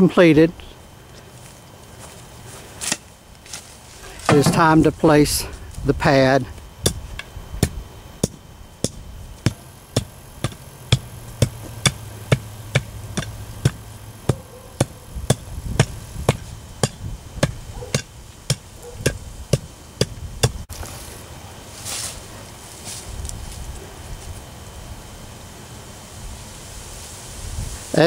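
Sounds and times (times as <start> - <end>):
hand tamper pounding soil: 2.8 - 5.0, 6.0 - 20.9.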